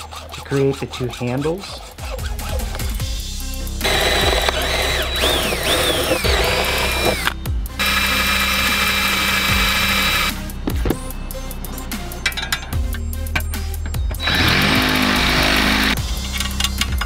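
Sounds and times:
electric drill whining through steel: 0:03.7 - 0:10.6, 0:12.1 - 0:16.5.

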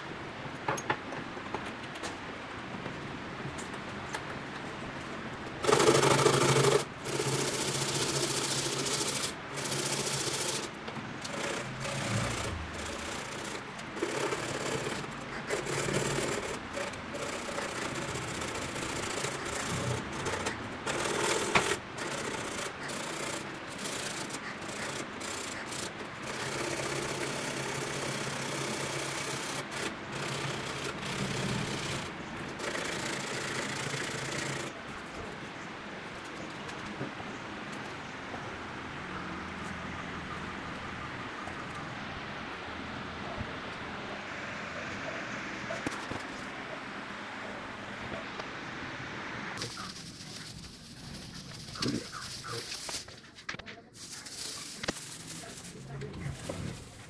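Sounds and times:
hand sanding strokes: 0:05.6 - 0:32.1, 0:49.6 - 0:57.0.

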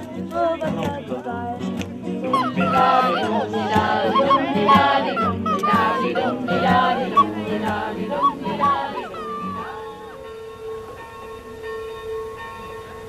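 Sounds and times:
group of voices singing: 0:00.0 - 0:10.3
held accompaniment notes: 0:00.0 - 0:13.0.

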